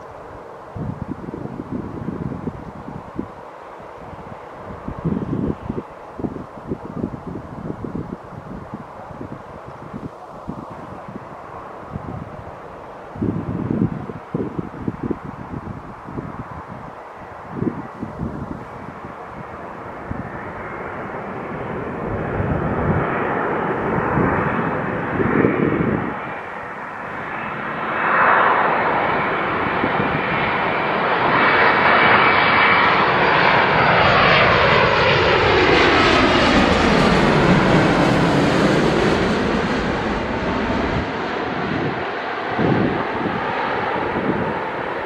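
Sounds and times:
jet airliner passing overhead: 0.0 - 45.0.

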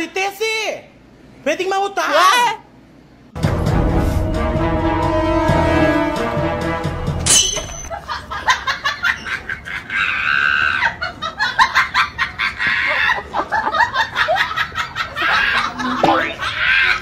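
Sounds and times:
high-pitched cackling laughter: 7.9 - 17.0.

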